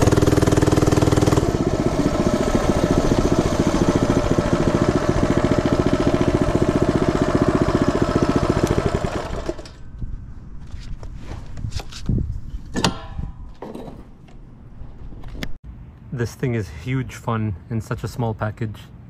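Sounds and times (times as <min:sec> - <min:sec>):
mini bike engine running: 0:00.0 - 0:09.8.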